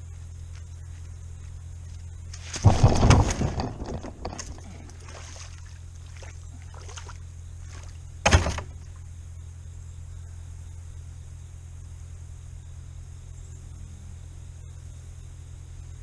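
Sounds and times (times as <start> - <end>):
person falling with thumps and scuffing: 2.3 - 5.7, 7.7 - 8.9.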